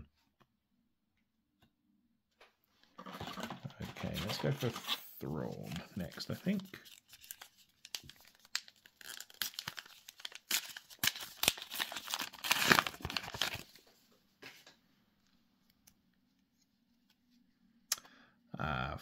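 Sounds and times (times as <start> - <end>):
wrapper ripping and crackling: 5.7 - 13.8.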